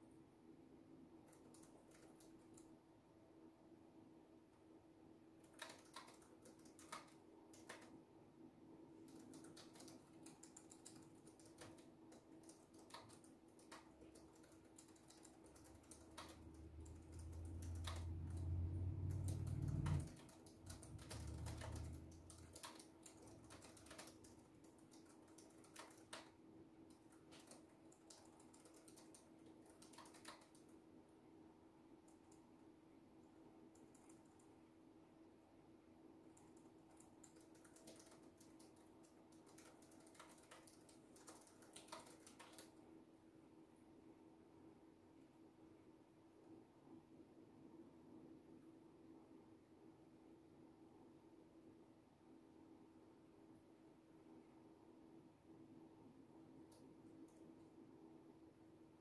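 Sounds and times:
typing on computer keyboard: 0:01.2 - 0:02.8, 0:05.4 - 0:08.0, 0:09.0 - 0:30.8, 0:33.6 - 0:34.6, 0:36.2 - 0:42.8.

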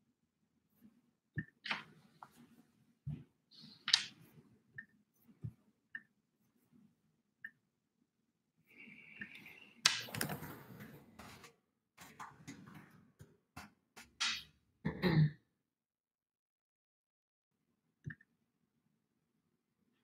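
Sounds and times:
rustling and clicking at a desk: 0:09.2 - 0:14.2
person clearing throat: 0:14.8 - 0:15.5.

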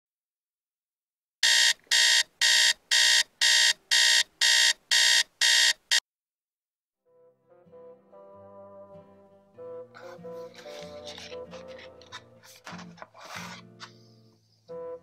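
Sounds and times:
alarm clock beeping: 0:01.4 - 0:06.0.

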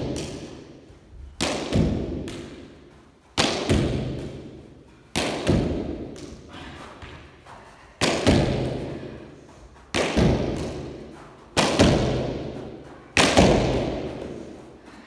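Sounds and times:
stick cracking ball: 0:09.8 - 0:14.7
ball hitting wall: 0:09.9 - 0:14.7.

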